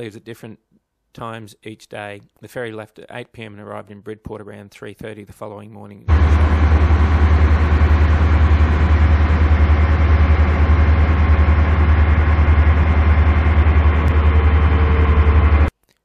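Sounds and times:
ship engine throbbing: 0:06.1 - 0:15.7.

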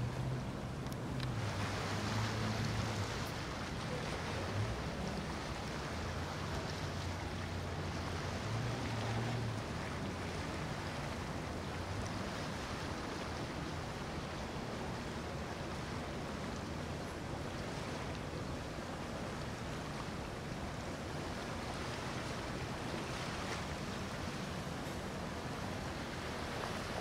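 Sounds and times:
boat engine rumble: 0:00.0 - 0:27.0
bow wave and choppy water: 0:00.0 - 0:27.0.

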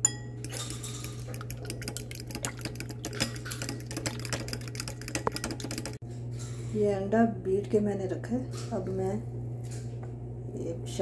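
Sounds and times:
fork beating egg in bowl: 0:00.0 - 0:06.0.

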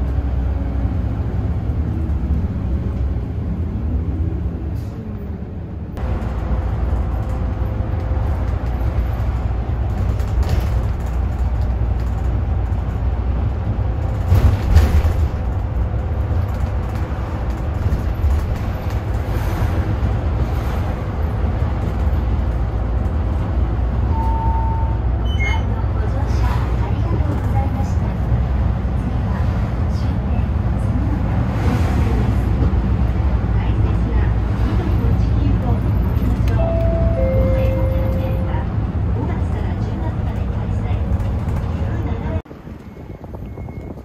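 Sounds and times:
bus engine and road rumble: 0:00.0 - 0:44.0
bus bump: 0:06.0 - 0:13.0, 0:13.9 - 0:22.7.

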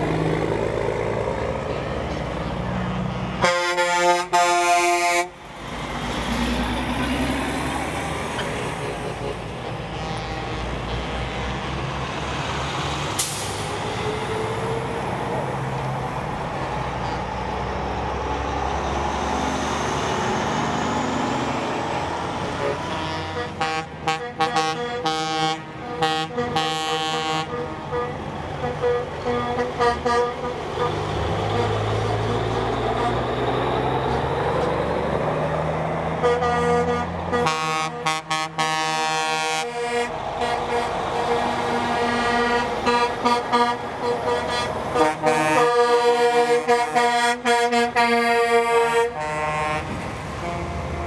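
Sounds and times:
trucks rolling past: 0:00.0 - 0:51.0
truck air horn blasts: 0:03.4 - 0:05.4, 0:08.7 - 0:11.8, 0:22.4 - 0:33.3, 0:36.2 - 0:51.0.

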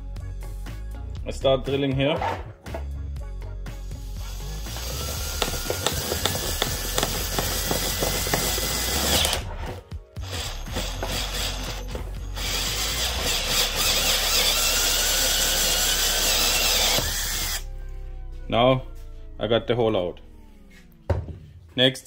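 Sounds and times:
drill hole saw cutting plastic: 0:04.0 - 0:09.4, 0:10.2 - 0:17.7.

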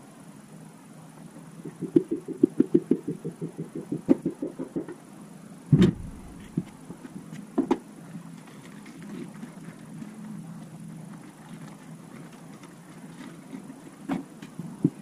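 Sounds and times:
heavy thump: 0:05.7 - 0:06.6.

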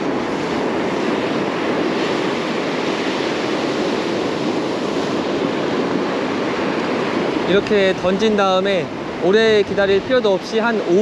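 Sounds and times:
surf breaking on beach: 0:00.0 - 0:11.0
wind buffeting microphone: 0:00.0 - 0:11.0.

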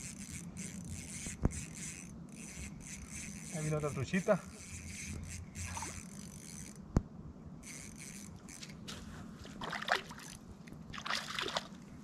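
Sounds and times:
fishing reel whirring: 0:00.0 - 0:06.9, 0:07.6 - 0:08.8
fish splash: 0:11.0 - 0:11.7.

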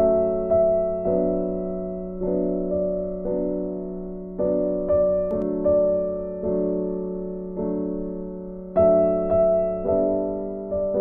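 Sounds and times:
slow piano notes and chords: 0:00.0 - 0:11.0.

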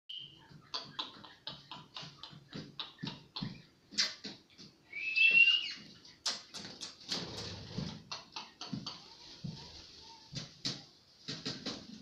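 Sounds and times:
parakeet rising whistle: 0:05.0 - 0:05.7.

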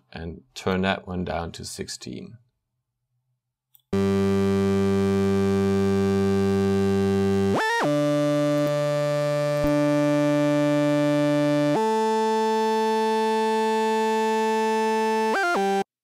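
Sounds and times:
synthesizer lead: 0:04.0 - 0:15.9.

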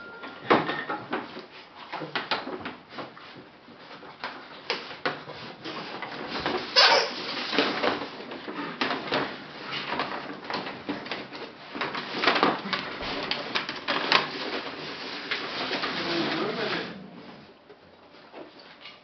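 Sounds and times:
paper bag crinkling: 0:05.6 - 0:17.0.

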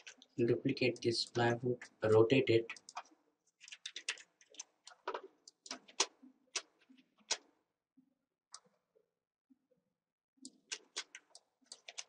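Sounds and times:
mouse and keyboard clicking: 0:01.2 - 0:07.5, 0:10.4 - 0:12.0.

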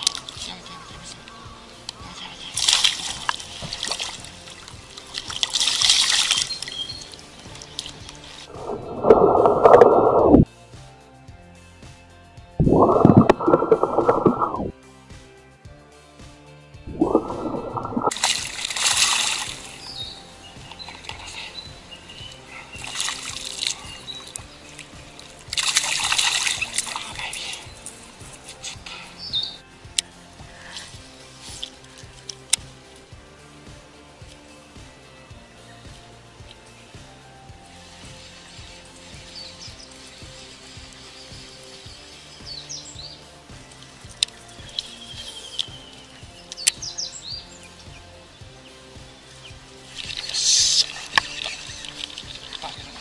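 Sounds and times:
fish splashing at water surface: 0:02.0 - 0:10.4, 0:12.6 - 0:14.7, 0:16.9 - 0:20.0, 0:20.6 - 0:29.2, 0:49.8 - 0:53.0.

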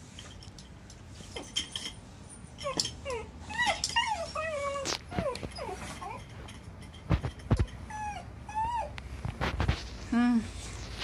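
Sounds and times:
dog whining and whimpering: 0:02.5 - 0:06.4, 0:07.5 - 0:09.0.

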